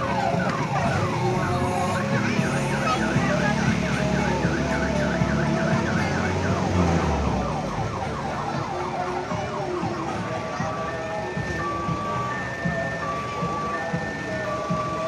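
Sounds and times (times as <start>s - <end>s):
electronic siren warbling: 0.0s - 10.3s
low engine rumble: 0.0s - 15.0s.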